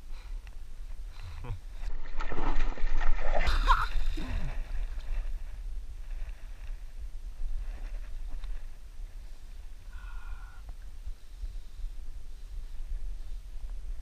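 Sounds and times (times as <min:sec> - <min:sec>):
water movement: 0:01.6 - 0:08.9
fish thrashing and splashing: 0:01.9 - 0:05.0.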